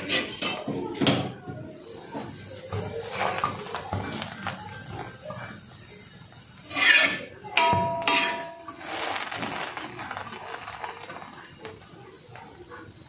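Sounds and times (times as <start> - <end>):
metal spatula scraping on griddle: 0.0 - 0.7, 6.6 - 9.9
bread frying hiss: 0.0 - 13.0
metallic clang: 6.8 - 8.9.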